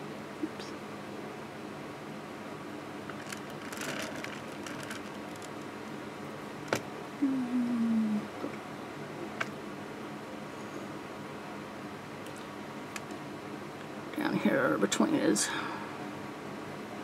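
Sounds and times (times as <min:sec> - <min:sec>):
faint steady hum: 0:00.0 - 0:17.0
board rustling and clicking: 0:03.1 - 0:05.6.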